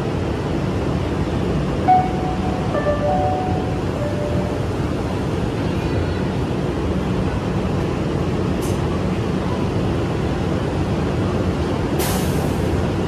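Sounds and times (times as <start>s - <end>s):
train equipment humming: 0.1s - 8.6s.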